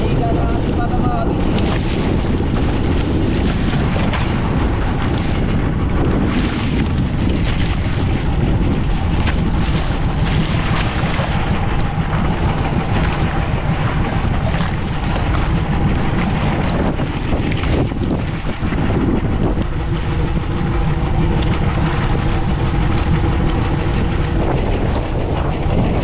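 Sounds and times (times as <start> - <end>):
boat engine running: 0.0 - 26.0
wind buffeting microphone: 0.0 - 26.0.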